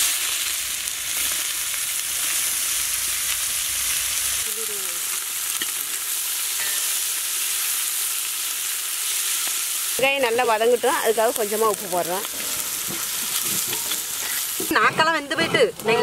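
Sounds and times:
onions sizzling in hot oil: 0:00.0 - 0:16.0
ladle stirring: 0:12.2 - 0:15.6.

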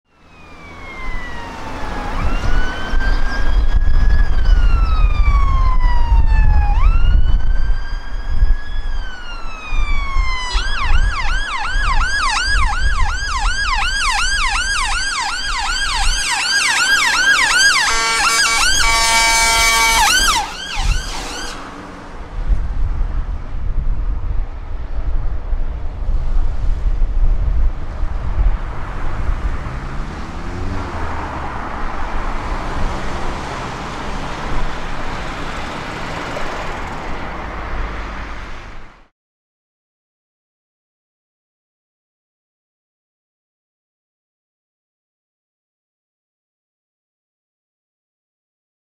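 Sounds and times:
road traffic: 0:00.0 - 0:39.1
ambulance siren: 0:00.1 - 0:22.2
bullhorn tone: 0:17.0 - 0:21.6.

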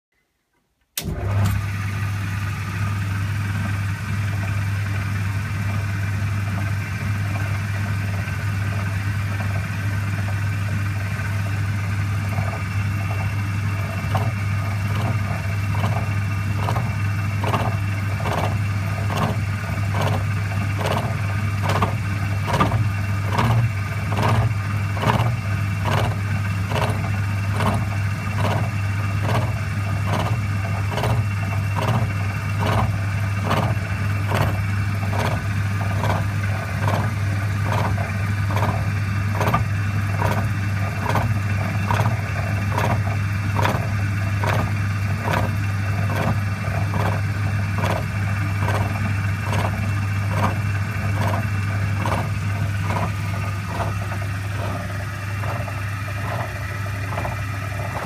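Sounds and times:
milling machine motor humming: 0:01.0 - 0:58.0
disc cutter clacking on metal bar: 0:20.8 - 0:29.5.

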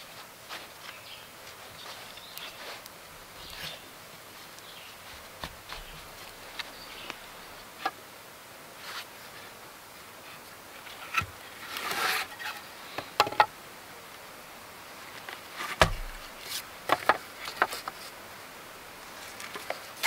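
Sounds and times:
hands knocking and rustling wood: 0:05.1 - 0:07.2, 0:13.1 - 0:13.5, 0:15.3 - 0:18.1
heavy thump: 0:15.8 - 0:16.3.

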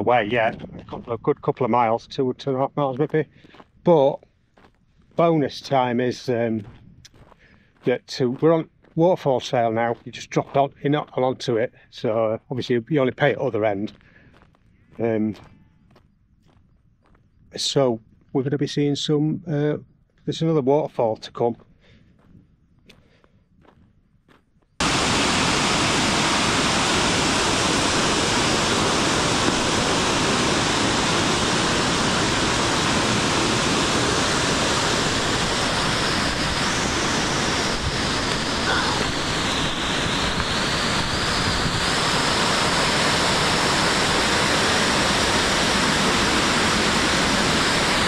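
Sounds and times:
waterfall roaring: 0:24.8 - 0:48.0.

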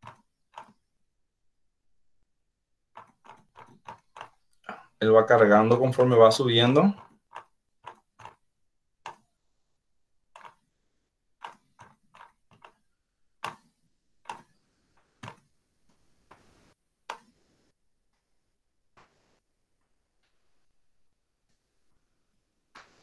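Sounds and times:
computer mouse clicks: 0:00.0 - 0:00.8, 0:02.9 - 0:04.7, 0:09.0 - 0:09.3, 0:10.3 - 0:10.7, 0:11.4 - 0:15.5, 0:16.3 - 0:17.4.

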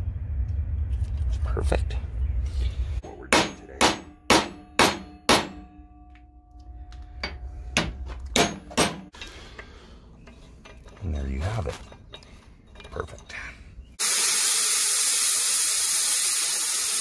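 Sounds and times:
hammer striking metal pipe: 0:03.3 - 0:09.2
metal ringing: 0:03.3 - 0:13.5.

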